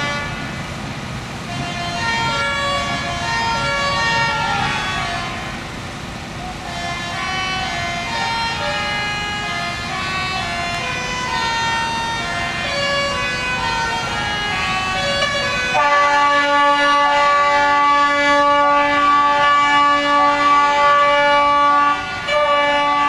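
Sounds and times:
truck air horns sounding: 0.0 - 0.7, 1.4 - 23.0.

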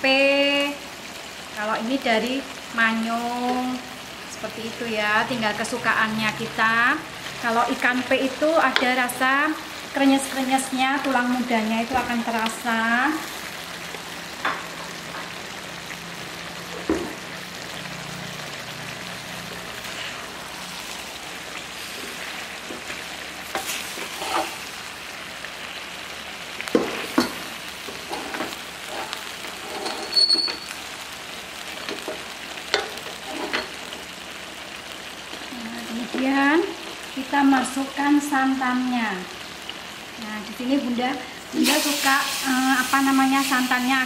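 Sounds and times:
food sizzling in a wok: 0.0 - 44.0
spatula scraping and knocking pan: 26.7 - 30.6, 31.9 - 33.7.

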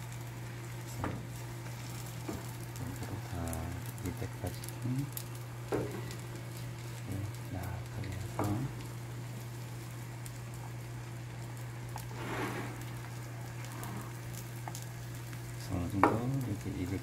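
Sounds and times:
egg sizzling in a pan: 0.0 - 17.0
steady low hum: 0.0 - 17.0.

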